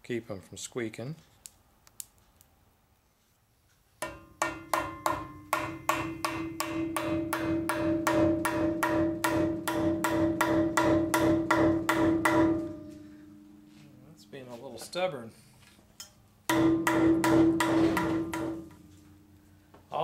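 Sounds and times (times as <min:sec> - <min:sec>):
hammer blows on metal ringing: 0:04.0 - 0:14.0, 0:16.5 - 0:19.6.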